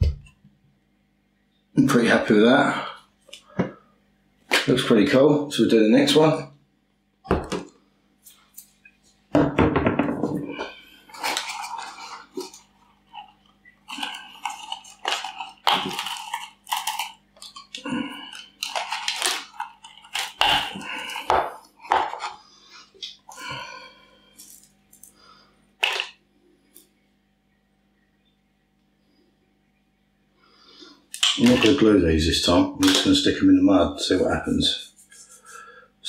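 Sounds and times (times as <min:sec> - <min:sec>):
plastic plant rustling and crackling: 0:10.6 - 0:22.4.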